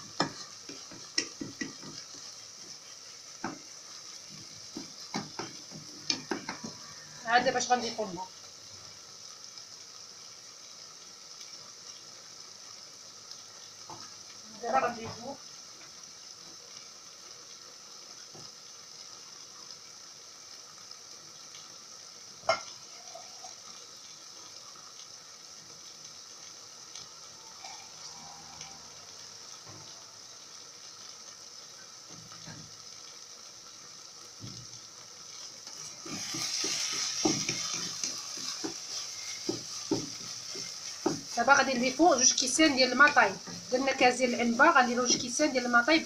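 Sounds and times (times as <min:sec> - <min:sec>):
food sizzling in a pot: 0:00.0 - 0:46.0
wooden spatula scraping pot: 0:00.1 - 0:02.2, 0:35.7 - 0:44.0.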